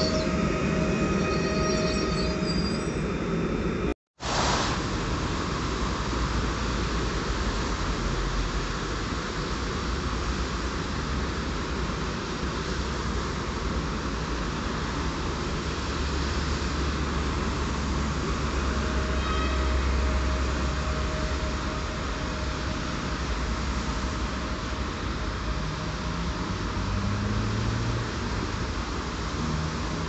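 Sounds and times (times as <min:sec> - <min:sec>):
electric train humming and hissing: 0:00.0 - 0:30.0.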